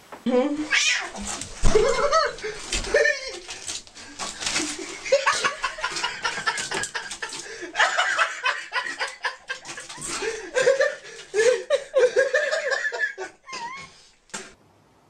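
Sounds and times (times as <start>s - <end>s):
person chuckling: 1.6s - 14.5s.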